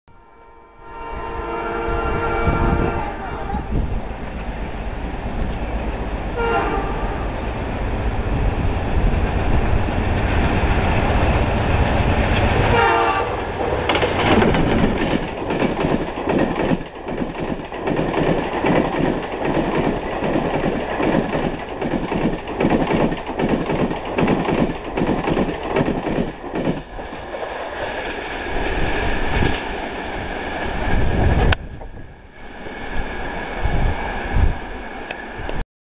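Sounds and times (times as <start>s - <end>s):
locomotive horn: 0.1s - 3.8s, 6.4s - 7.4s, 12.7s - 13.5s
train wheels clattering over rail joints: 13.6s - 29.7s.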